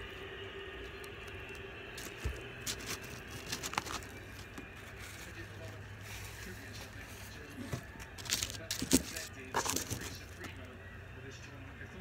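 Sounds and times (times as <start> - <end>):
paper wrapper crinkling: 1.2 - 10.6.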